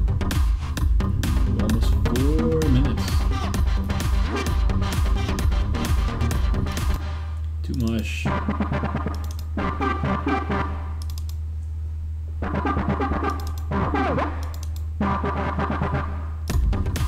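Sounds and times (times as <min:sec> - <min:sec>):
electronic dance track: 0:00.0 - 0:07.3, 0:12.4 - 0:14.4, 0:15.0 - 0:17.0
held bass note: 0:01.0 - 0:07.1
short synth patterns: 0:08.2 - 0:11.0.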